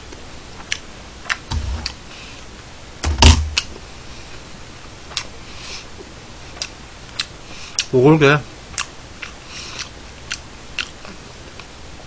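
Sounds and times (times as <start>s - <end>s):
heavy thump: 1.5s - 1.9s, 3.0s - 3.6s
objects knocking on a desk: 3.0s - 3.6s.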